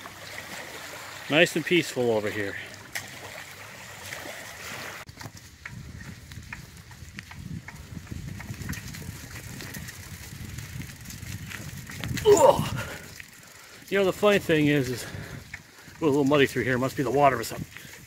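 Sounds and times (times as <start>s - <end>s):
bicycle tyres rolling on dirt: 0.0s - 18.0s
dry leaves and twigs crackling: 5.1s - 18.0s.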